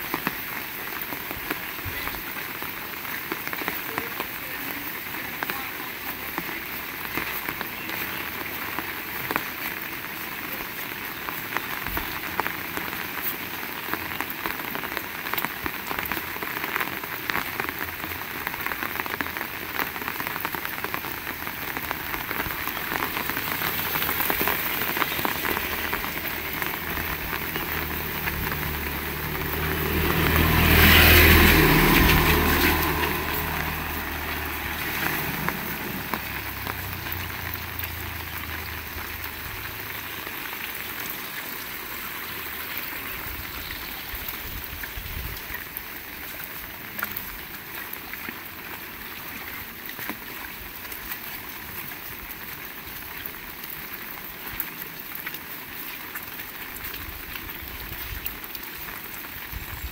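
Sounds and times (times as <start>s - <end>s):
heavy rain: 0.0s - 59.9s
vehicle passing: 23.2s - 39.9s.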